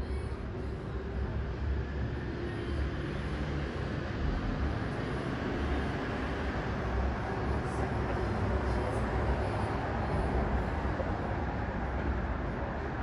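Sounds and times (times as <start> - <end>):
low city rumble: 0.0 - 13.0.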